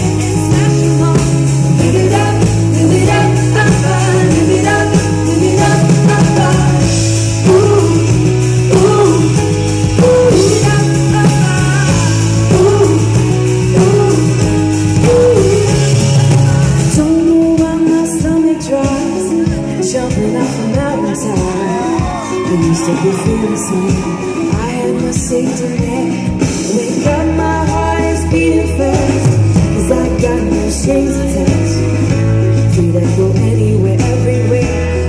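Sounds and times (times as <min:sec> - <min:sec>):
acoustic and electric guitars: 0:00.0 - 0:35.0
bass line: 0:00.0 - 0:35.0
drums: 0:00.0 - 0:35.0
woman singing: 0:00.0 - 0:35.0.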